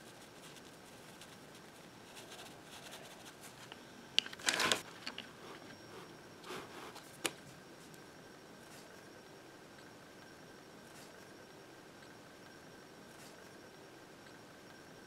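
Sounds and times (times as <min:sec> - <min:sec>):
faint room hiss: 0:00.0 - 0:15.0
paper rustling: 0:02.3 - 0:05.3.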